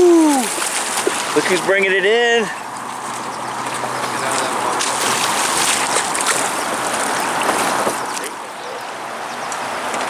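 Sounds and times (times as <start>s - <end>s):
small water splashes: 0.0s - 8.8s
river water rushing around boat: 0.0s - 10.0s.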